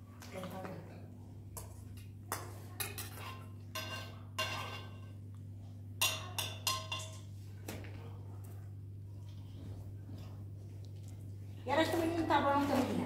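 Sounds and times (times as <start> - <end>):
steady low hum: 2.9 - 13.0.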